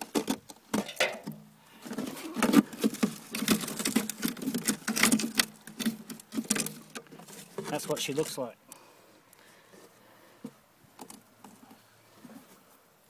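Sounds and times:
metal mesh and matting clicks: 0.0s - 8.4s, 11.0s - 11.8s.

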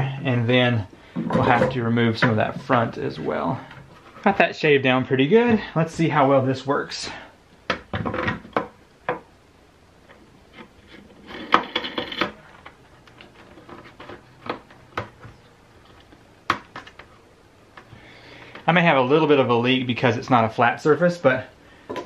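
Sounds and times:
parts rattling: 10.5s - 17.1s.

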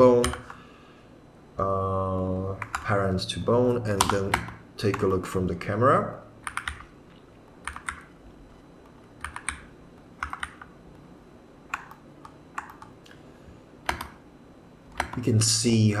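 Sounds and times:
faint steady hum: 0.0s - 16.0s
keyboard keys clicking: 2.6s - 2.9s, 3.9s - 5.1s, 6.4s - 6.9s, 7.6s - 8.1s, 8.8s - 10.7s, 11.7s - 13.0s, 13.9s - 14.2s, 14.9s - 15.2s.

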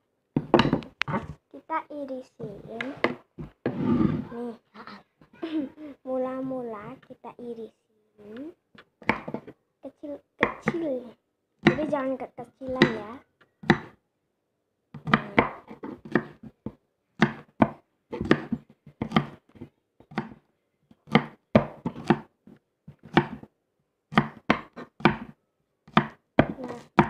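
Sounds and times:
knife chopping on cutting board: 9.0s - 9.5s, 10.4s - 10.8s, 13.6s - 14.0s, 15.0s - 16.5s, 17.2s - 19.4s, 20.0s - 20.4s, 21.0s - 22.3s, 23.0s - 23.5s, 24.1s - 27.0s.

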